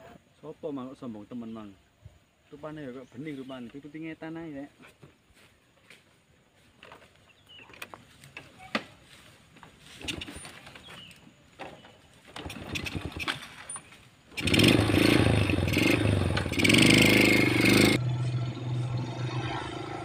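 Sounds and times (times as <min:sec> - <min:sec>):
motorcycle engine revving: 0:12.3 - 0:20.0.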